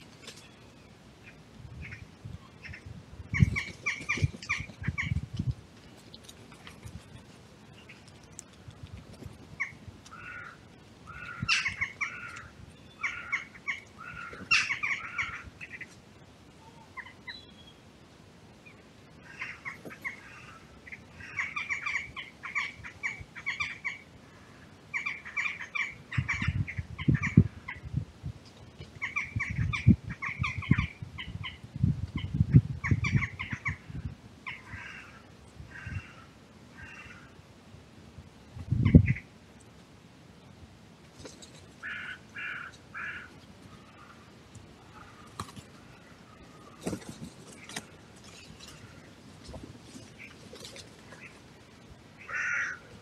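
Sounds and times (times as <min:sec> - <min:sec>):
crows cawing: 0:09.6 - 0:15.8, 0:19.2 - 0:26.5, 0:34.5 - 0:37.4, 0:41.8 - 0:46.8, 0:52.2 - 0:52.9
rustling: 0:44.5 - 0:51.8.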